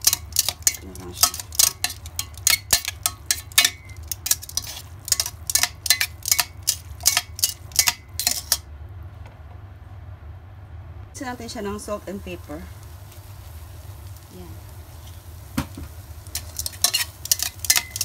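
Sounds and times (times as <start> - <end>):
tongs clacking against steel pot: 0.0 - 8.6, 16.3 - 18.0.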